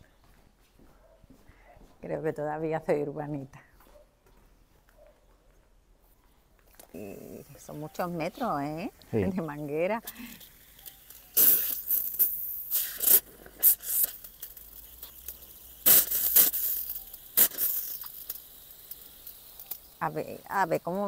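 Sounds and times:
garden hose rustling and scraping: 6.0s - 21.0s.

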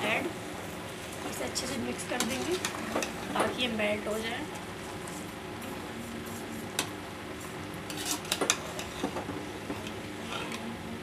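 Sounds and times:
metal spoon scraping a pot: 7.9s - 9.1s, 10.2s - 10.6s.

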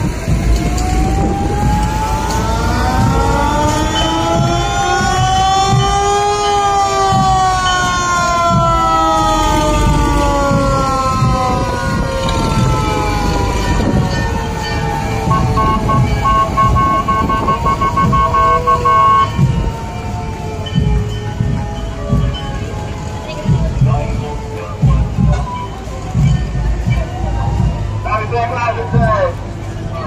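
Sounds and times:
low vehicle rumble: 0.0s - 30.0s
sirens wailing: 0.0s - 30.0s.

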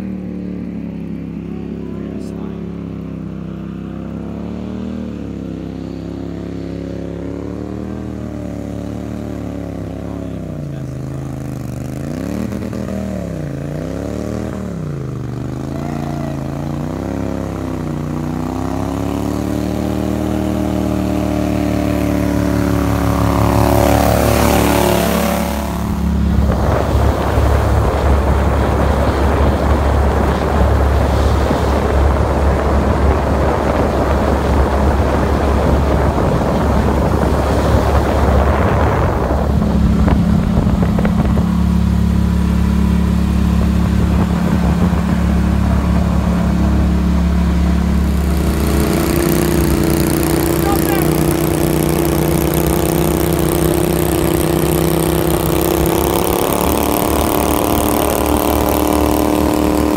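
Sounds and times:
mud motor boat approaching: 0.0s - 59.9s
rough boat motor rumble: 0.0s - 59.9s
wind rush: 20.6s - 59.9s.

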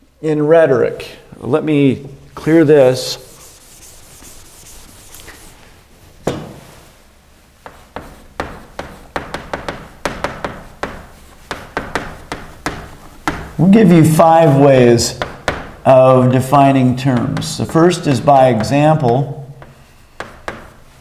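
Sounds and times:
eraser rubbing a chalkboard: 2.4s - 5.8s, 6.5s - 15.8s, 19.6s - 21.0s
chalk writing on a blackboard: 2.9s - 5.6s, 7.6s - 13.6s, 19.6s - 21.0s
single knock: 6.2s - 6.6s.

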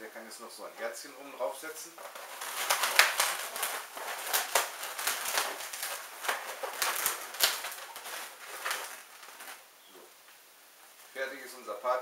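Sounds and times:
balloons rubbing and squeaking: 1.4s - 10.2s.

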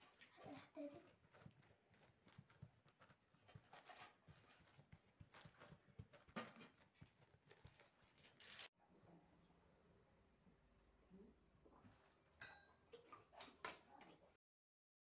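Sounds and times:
fingertips patting dough: 0.9s - 8.0s.

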